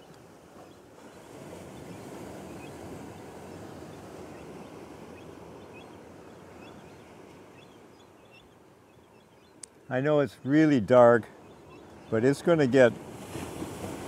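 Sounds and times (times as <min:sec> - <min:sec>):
surf breaking on rocky shore: 0:12.1 - 0:14.0.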